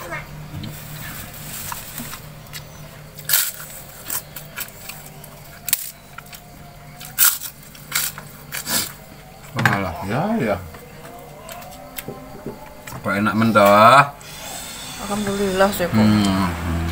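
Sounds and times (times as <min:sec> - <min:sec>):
crackers crunching: 0:00.6 - 0:09.6, 0:10.8 - 0:12.8.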